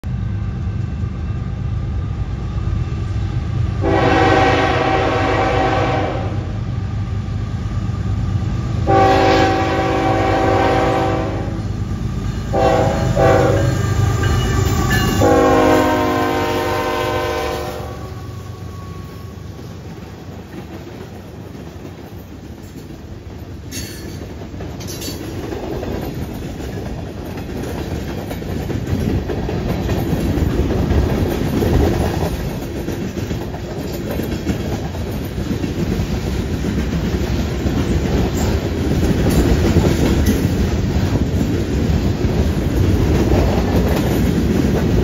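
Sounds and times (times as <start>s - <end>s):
diesel locomotive rumble: 0.0s - 45.0s
locomotive air horn chord: 3.8s - 6.5s, 8.9s - 11.7s, 12.5s - 19.4s.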